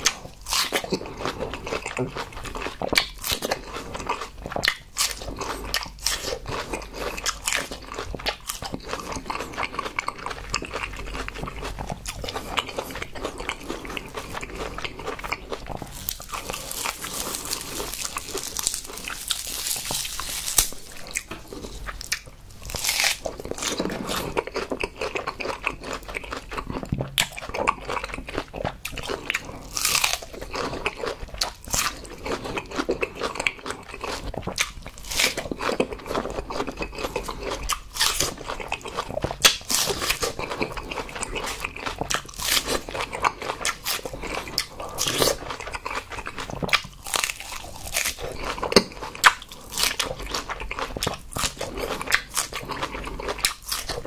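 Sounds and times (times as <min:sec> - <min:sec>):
crunching and chewing: 0:00.0 - 0:54.0.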